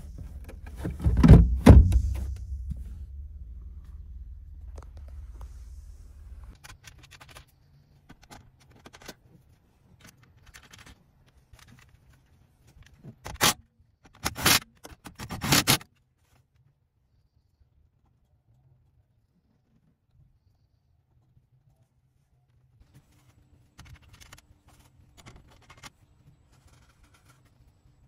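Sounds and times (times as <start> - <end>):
low rumble: 0.0 - 6.6
wiring rustles and connector clicks: 6.5 - 15.5, 22.9 - 27.7.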